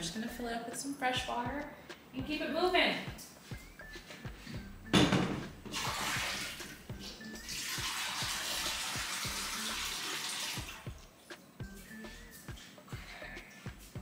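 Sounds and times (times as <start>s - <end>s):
tap water running into bowl: 5.7s - 6.8s, 7.5s - 10.8s.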